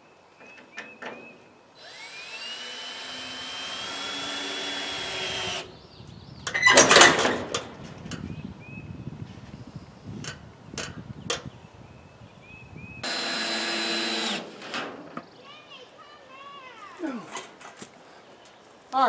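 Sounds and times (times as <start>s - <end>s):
cordless drill whining: 1.8s - 5.7s, 13.0s - 14.5s.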